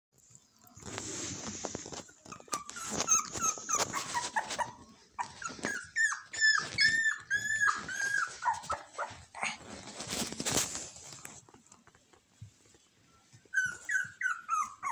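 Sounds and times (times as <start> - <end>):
puppy whimpering: 2.2 - 9.9, 13.5 - 14.9.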